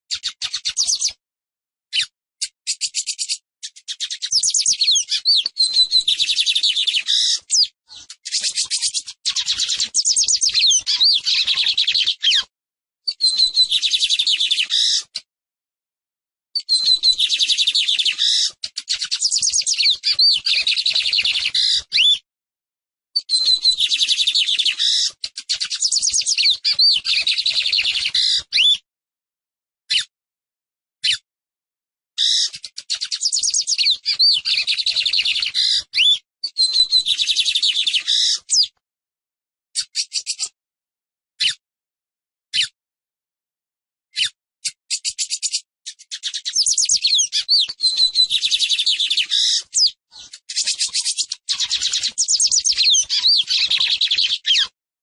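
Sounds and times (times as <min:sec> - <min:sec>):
bird singing chattering trills: 0:02.4 - 0:12.4, 0:32.3 - 0:37.6, 0:44.6 - 0:54.7.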